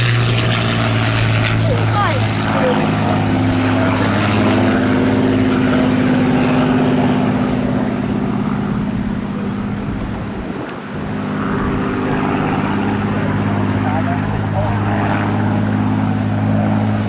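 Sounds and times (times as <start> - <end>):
propeller plane engine in flight: 0.0 - 17.0.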